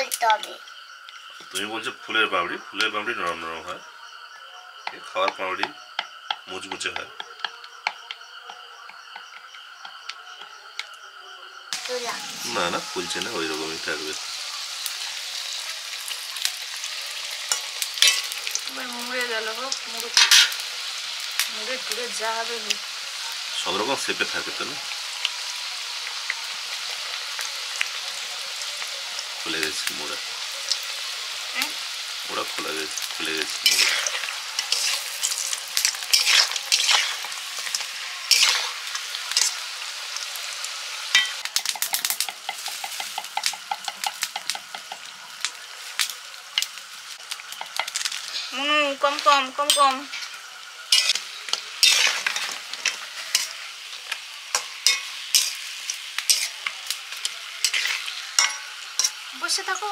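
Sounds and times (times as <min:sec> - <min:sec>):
dough frying in hot oil: 0:09.0 - 0:59.9
metal spatula scraping pan: 0:20.2 - 0:20.6, 0:33.6 - 0:39.6, 0:49.7 - 0:53.6, 0:54.5 - 0:59.2.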